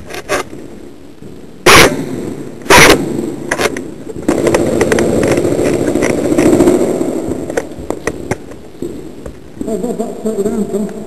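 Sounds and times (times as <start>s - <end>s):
airsoft guns firing bursts: 4.2s - 7.5s.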